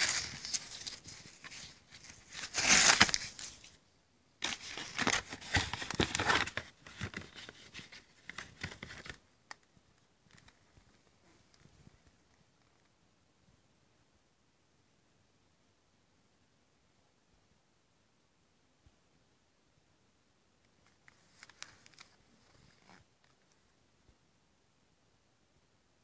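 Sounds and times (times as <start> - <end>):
cardboard tearing and rustling: 0.0 - 3.8, 4.4 - 9.1.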